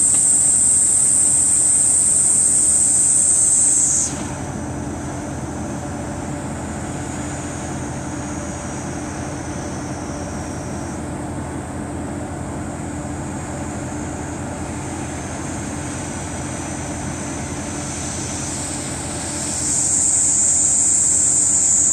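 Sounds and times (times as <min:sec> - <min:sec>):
high-pitched insect buzz: 0:00.0 - 0:04.4, 0:18.2 - 0:21.9
diesel railcar idling: 0:04.3 - 0:21.9.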